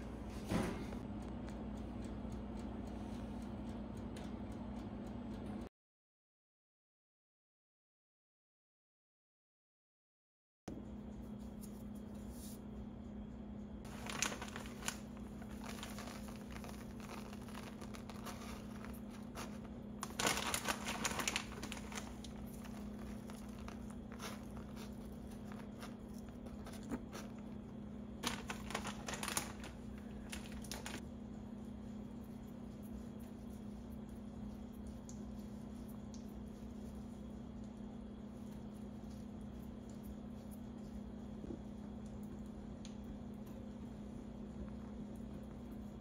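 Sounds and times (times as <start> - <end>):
crinkling and rustling: 13.9 - 31.0.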